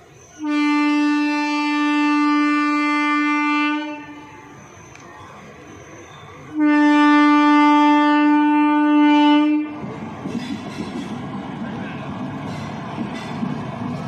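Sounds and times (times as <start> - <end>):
approaching train rumble: 0.0 - 14.0
locomotive horn blast: 0.4 - 4.5, 6.5 - 9.9.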